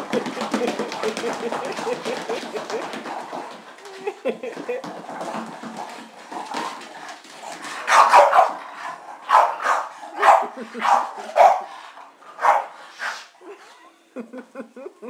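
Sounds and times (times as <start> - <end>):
dog barking playfully: 7.9 - 8.6, 9.3 - 11.7, 12.4 - 12.7.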